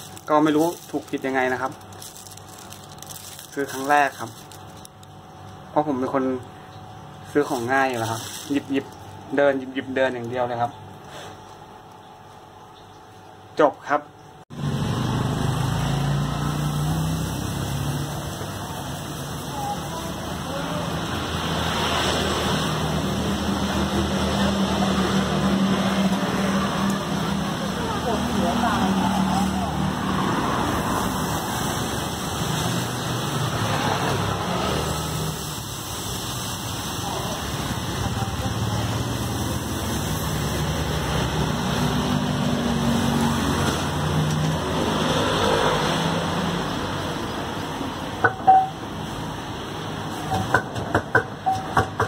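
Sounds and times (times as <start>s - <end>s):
vehicle engine humming: 0.0s - 10.6s
street noise: 0.0s - 12.2s, 14.5s - 52.0s
outdoor noise: 0.0s - 52.0s.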